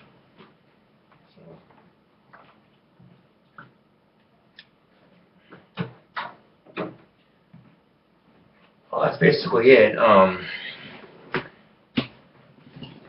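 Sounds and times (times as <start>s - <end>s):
knocks and clunks of objects: 5.4s - 7.8s, 11.3s - 13.0s.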